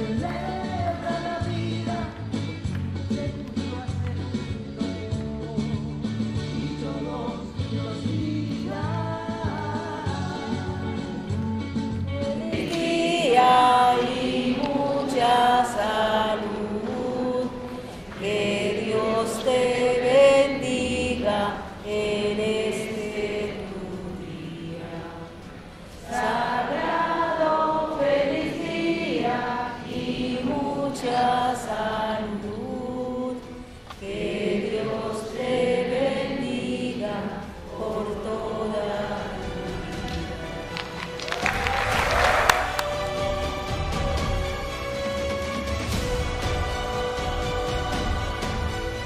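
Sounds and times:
women singing a slow song: 0.0s - 2.4s, 7.0s - 40.8s.

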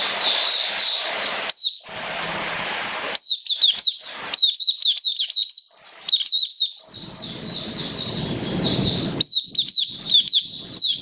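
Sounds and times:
bird chirping song: 0.0s - 1.9s, 3.1s - 11.0s
low rushing noise: 7.0s - 10.8s.

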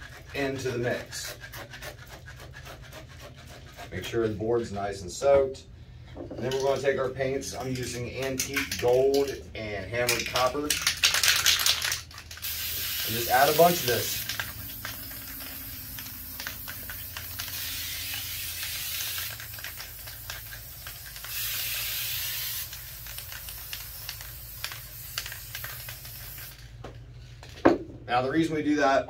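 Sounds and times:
spray paint can hissing: 10.0s - 26.8s.

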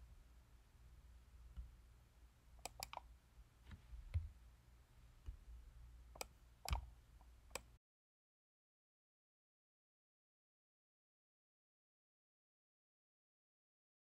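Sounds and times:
low steady hum: 0.0s - 7.8s
faint irregular clicks: 2.6s - 4.3s, 6.1s - 7.8s.

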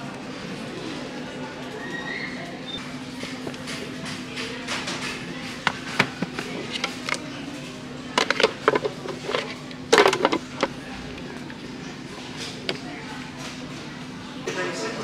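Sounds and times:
plastic box clacking and knocking: 8.2s - 10.7s.

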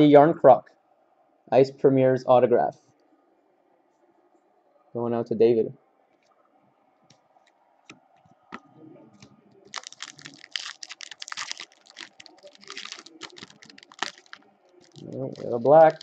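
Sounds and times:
foil wrapper crinkling and tearing: 9.6s - 16.0s.

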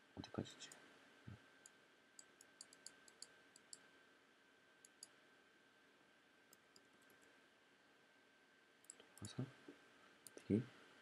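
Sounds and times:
computer mouse clicks: 1.6s - 3.8s, 4.8s - 5.1s.

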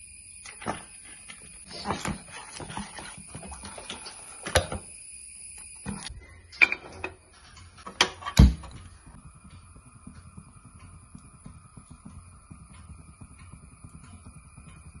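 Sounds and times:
ladle stirring batter in bowl: 0.4s - 4.6s.

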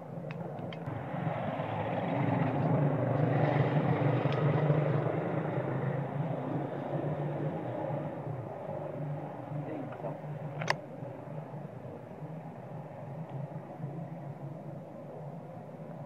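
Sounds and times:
motorbike passing by: 0.9s - 10.2s.

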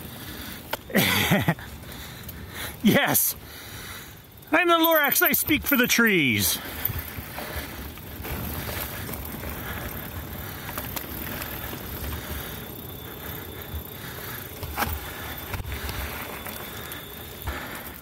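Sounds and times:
bike tyres on dirt and leaves: 0.0s - 18.0s
bike bumps and rattles: 6.6s - 18.0s.

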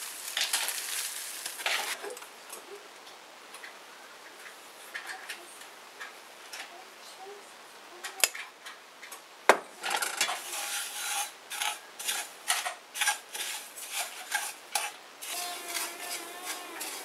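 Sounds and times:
spatula stirring breadcrumbs in pan: 0.0s - 2.0s, 10.2s - 17.0s.

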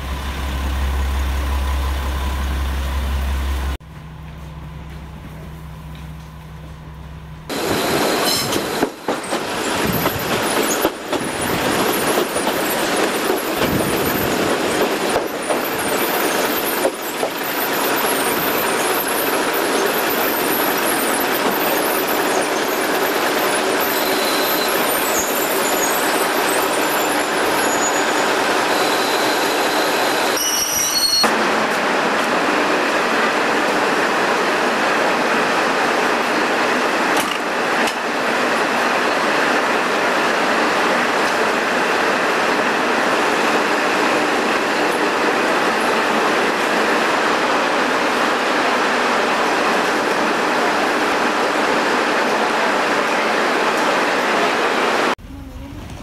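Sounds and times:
diesel train running: 0.0s - 56.0s
high metallic squeals: 17.4s - 31.3s.

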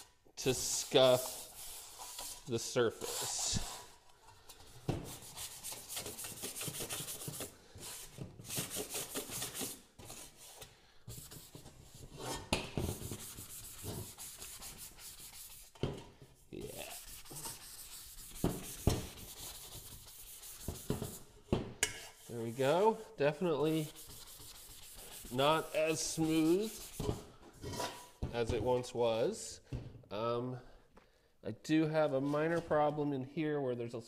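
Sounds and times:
sandpaper rubbing on sheet metal: 0.0s - 3.9s, 5.1s - 15.7s, 16.6s - 21.2s, 23.6s - 27.2s.

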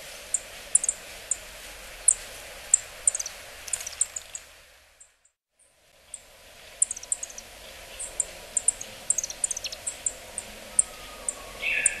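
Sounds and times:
bird calling sharp notes: 6.8s - 12.0s.

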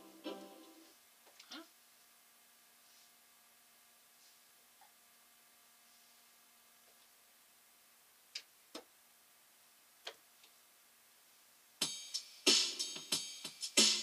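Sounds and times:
faint steady hum: 0.0s - 14.0s
electronic music with drum machine: 11.8s - 14.0s.

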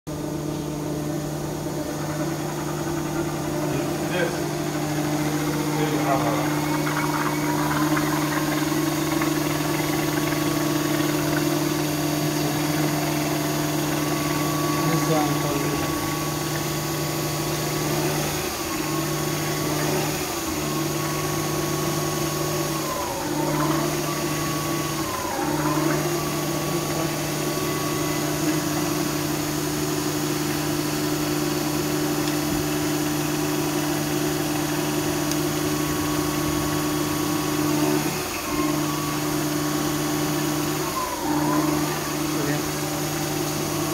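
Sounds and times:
high-pitched whine: 0.1s - 21.5s
steady mechanical hum: 0.1s - 43.9s.

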